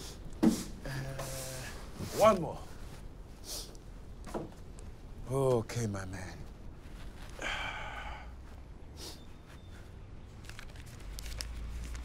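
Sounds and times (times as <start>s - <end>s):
paper crinkles: 9.5s - 12.0s.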